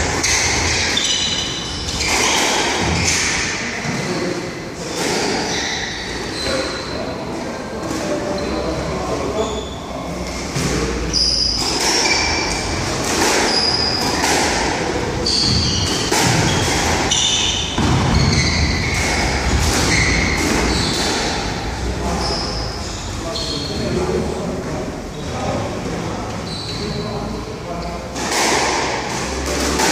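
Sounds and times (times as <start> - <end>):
shoes squeaking on wooden floor: 0.0 - 3.4, 5.1 - 7.0, 11.0 - 14.3, 15.1 - 21.4, 26.4 - 27.0.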